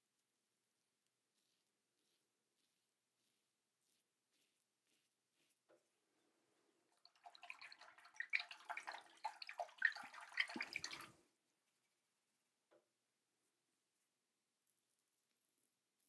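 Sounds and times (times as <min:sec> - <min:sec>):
water splashing in a sink: 0:06.9 - 0:11.2.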